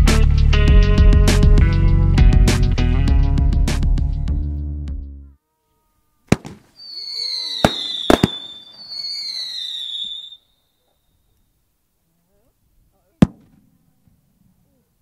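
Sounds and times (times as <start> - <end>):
firework bang: 6.3 - 10.2
firework cracks: 6.3 - 10.4, 13.2 - 13.7
firework whistles: 6.3 - 10.7.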